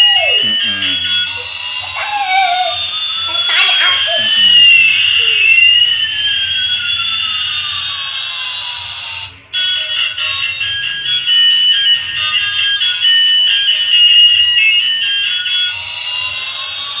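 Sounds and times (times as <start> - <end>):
toy high beeping tune: 0.0 - 6.8
toy siren-like wailing tone: 0.0 - 17.0.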